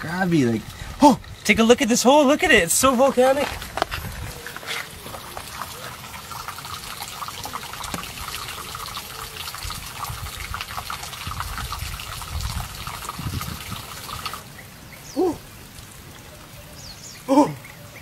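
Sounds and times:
water trickling and bubbling: 4.0s - 17.9s.

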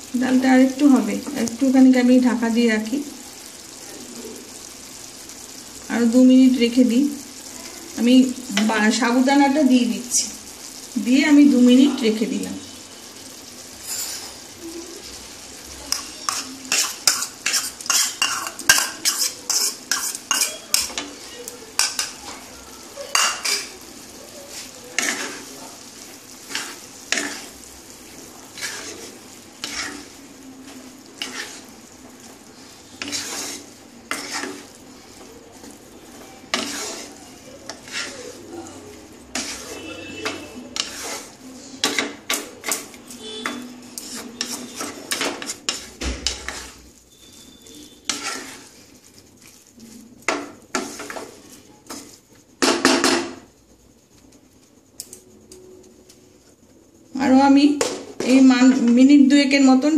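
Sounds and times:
low sizzle: 0.0s - 59.9s
spatula scraping a pan: 13.7s - 14.5s, 15.8s - 53.5s.

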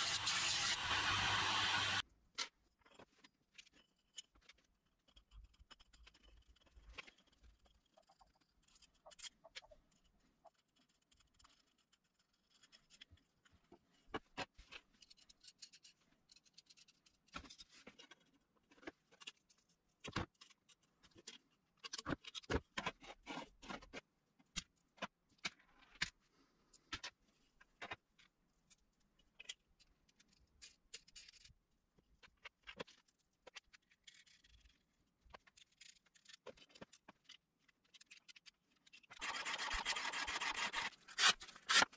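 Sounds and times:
small metal parts clicking: 28.2s - 31.6s, 32.2s - 39.2s.

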